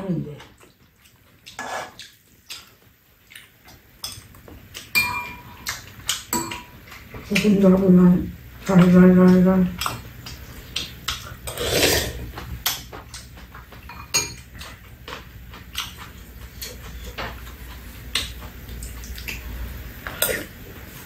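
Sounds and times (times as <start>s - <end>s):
utensils clinking on ceramic bowls: 4.9s - 6.8s, 13.8s - 14.5s.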